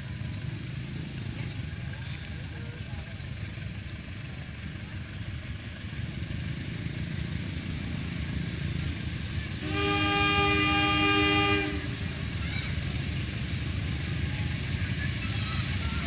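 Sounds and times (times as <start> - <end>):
locomotive engine rumble: 0.0 - 16.0
locomotive horn blast: 9.5 - 12.4.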